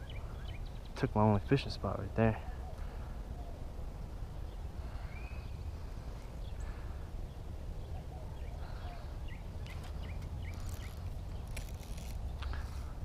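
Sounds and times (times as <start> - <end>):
bird chirps: 4.4 - 5.7, 6.4 - 11.6.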